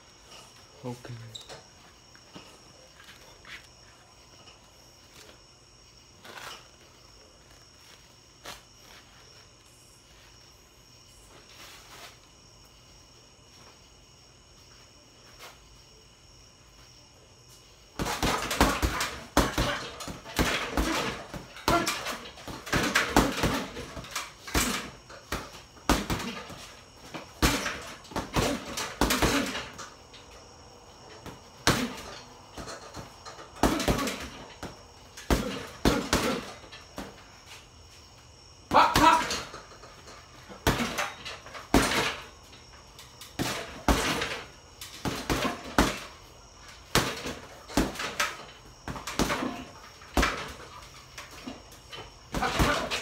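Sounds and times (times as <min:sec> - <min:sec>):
punches thudding on heavy bag: 0:18.0 - 0:29.8, 0:31.2 - 0:37.2, 0:38.7 - 0:39.5, 0:40.5 - 0:42.2, 0:43.4 - 0:46.1, 0:46.9 - 0:50.6, 0:52.3 - 0:53.0.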